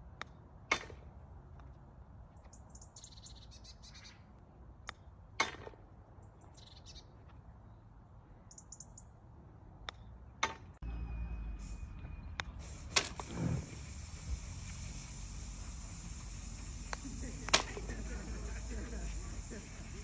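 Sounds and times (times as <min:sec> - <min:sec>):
birds chirping: 0:02.2 - 0:05.2, 0:06.1 - 0:09.2, 0:09.8 - 0:20.0
golf club striking ball: 0:12.4 - 0:13.6, 0:15.1 - 0:19.0.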